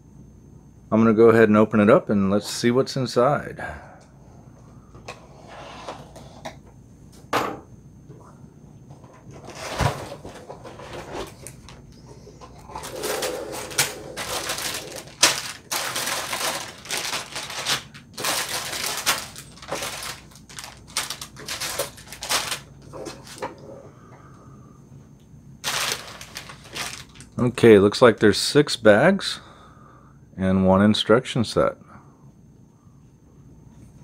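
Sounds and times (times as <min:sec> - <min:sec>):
plastic bags crinkling: 0:12.6 - 0:23.4, 0:25.6 - 0:27.4.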